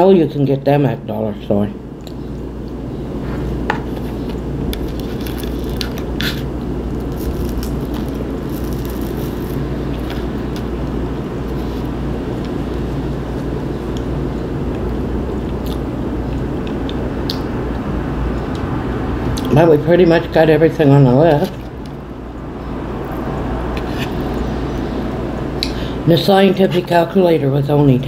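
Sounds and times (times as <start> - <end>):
low hum and rumble: 0.0 - 28.0.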